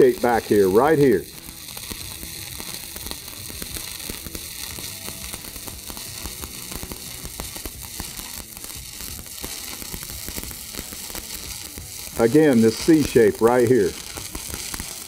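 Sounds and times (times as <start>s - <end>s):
welding arc hissing and crackling: 0.0s - 15.0s.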